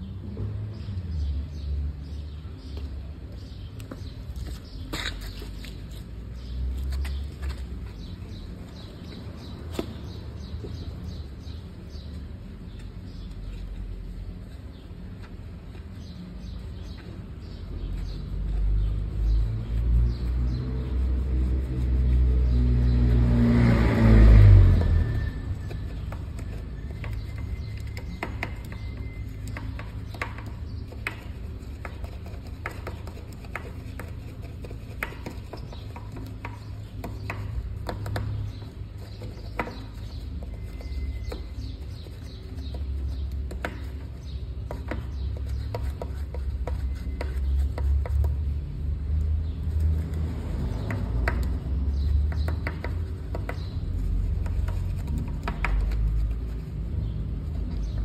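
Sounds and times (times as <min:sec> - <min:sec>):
brush scrubbing wheel: 0:18.1 - 0:23.4, 0:24.7 - 0:48.6
sharp clicks and taps: 0:49.8 - 0:56.5.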